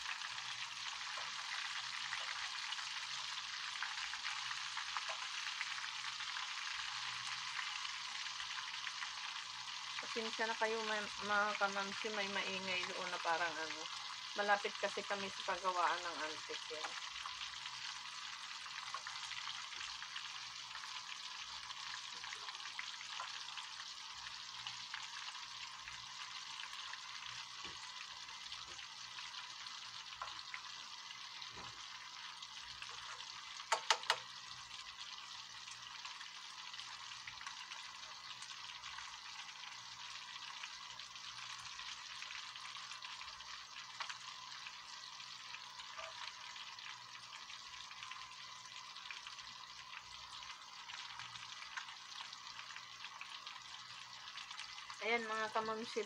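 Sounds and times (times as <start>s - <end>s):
fish deep-frying in oil: 0.0s - 56.0s.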